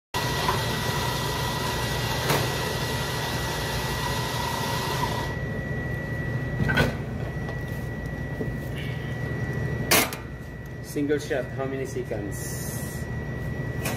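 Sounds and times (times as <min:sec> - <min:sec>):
coffee grinder whirring: 0:00.2 - 0:05.3
espresso machine hum: 0:00.2 - 0:05.6.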